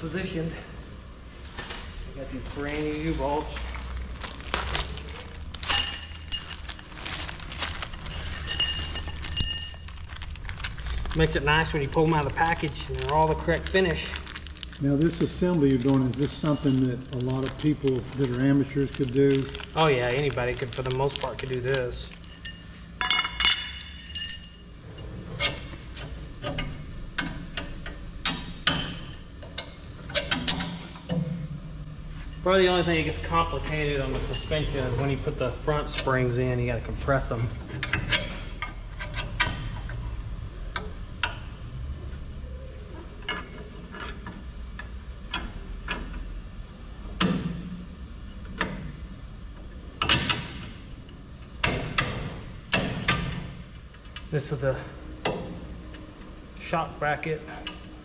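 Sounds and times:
metal u-bolts clinking: 4.5 - 14.1, 14.7 - 31.3, 33.2 - 36.4
metal hardware clinking: 5.6 - 10.1, 16.2 - 17.2, 19.4 - 25.6.

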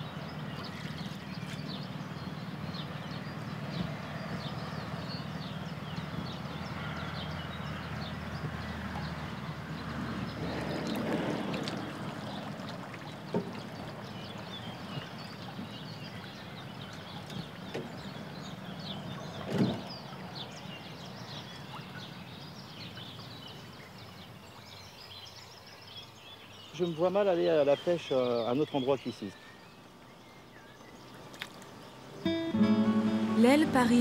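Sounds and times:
water pouring from net: 10.4 - 14.1.

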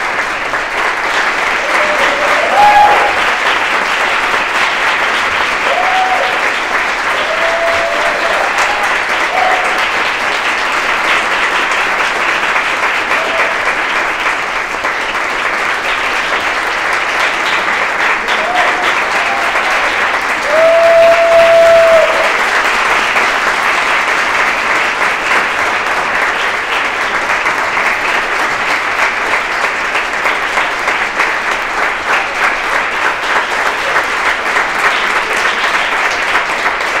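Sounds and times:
audience applauding: 0.0 - 37.0
high whoop: 1.6 - 3.2, 5.6 - 6.4, 7.1 - 9.8, 18.4 - 22.3.

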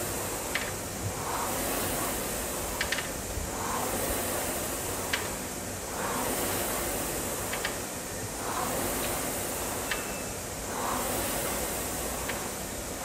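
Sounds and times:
rowing machine flywheel whooshing: 0.0 - 13.0
rowing machine click: 7.4 - 10.2.

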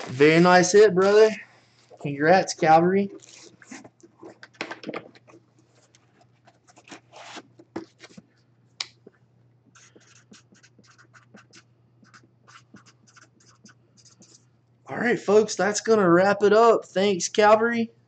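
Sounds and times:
marker pen writing on cardboard: 9.8 - 14.5.

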